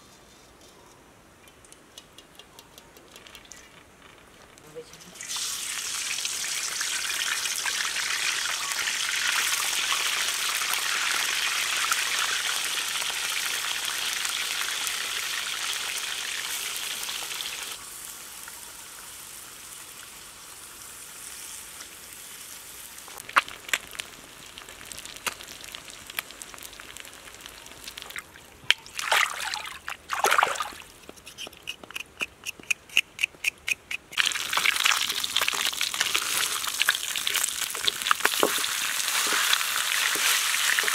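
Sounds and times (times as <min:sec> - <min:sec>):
fish sizzling in hot oil: 0:05.2 - 0:28.2, 0:34.2 - 0:40.9
sharp knocks and scrapes: 0:31.0 - 0:34.2.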